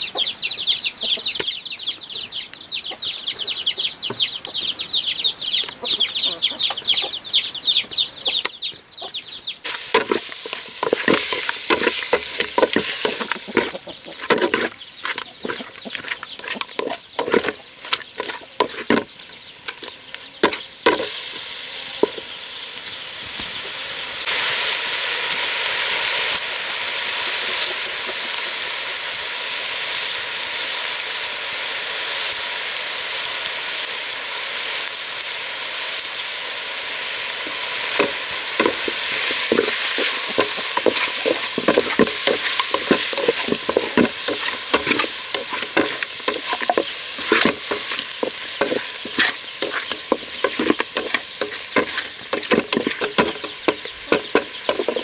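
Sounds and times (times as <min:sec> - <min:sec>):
meat sizzling in a pot: 0:09.6 - 0:55.0
spatula scraping a pot: 0:09.7 - 0:21.4, 0:37.5 - 0:55.0.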